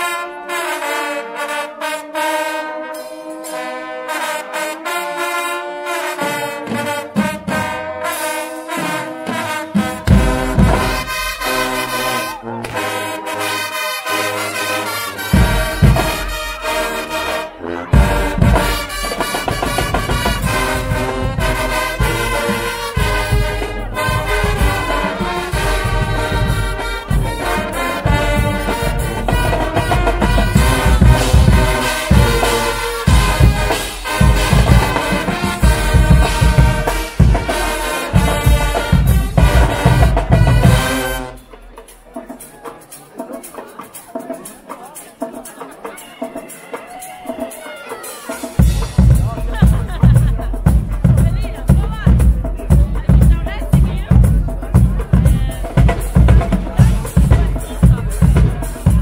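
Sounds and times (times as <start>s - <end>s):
brass band playing: 0.0s - 59.0s
drums: 1.8s - 59.0s
heavy bass drum beat: 9.3s - 12.2s, 15.2s - 17.2s, 17.9s - 42.3s, 48.3s - 59.0s.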